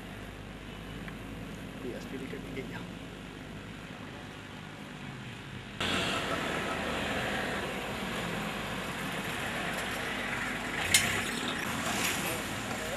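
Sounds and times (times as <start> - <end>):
truck driving past: 5.8 - 12.9.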